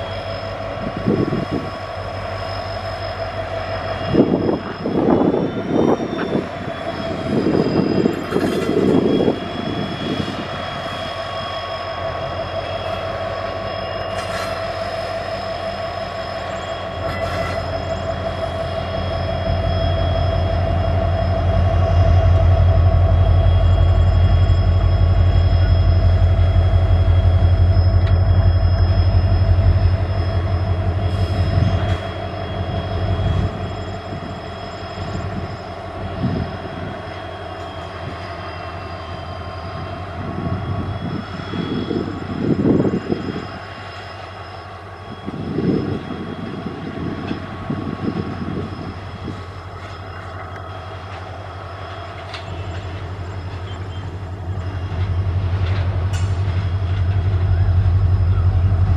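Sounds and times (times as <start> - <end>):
diesel locomotive engine throbbing: 0.0 - 58.9
steady high whine: 0.0 - 58.9
train wagons rolling and knocking: 52.0 - 58.9.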